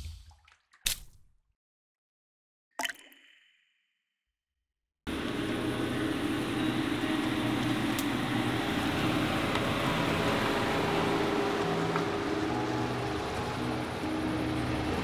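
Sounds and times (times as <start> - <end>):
mechanical hum and rumble: 5.1 - 15.0.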